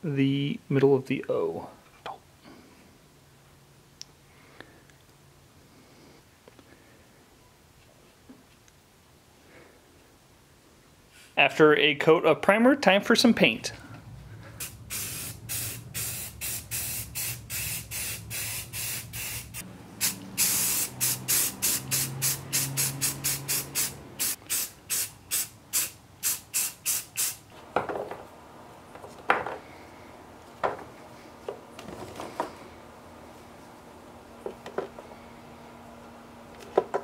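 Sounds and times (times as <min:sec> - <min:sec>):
aerosol spray can spraying: 0:14.6 - 0:27.4.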